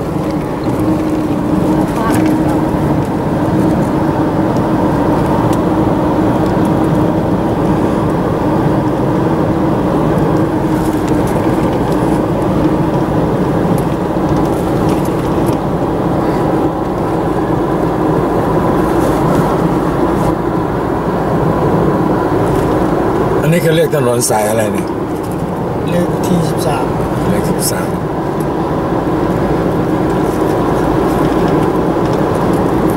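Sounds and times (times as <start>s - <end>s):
car engine and tyre noise: 0.0s - 32.9s.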